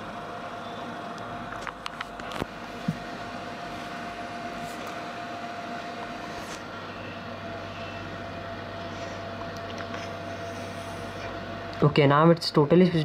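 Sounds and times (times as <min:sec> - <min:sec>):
background hum and hiss: 0:00.0 - 0:13.0.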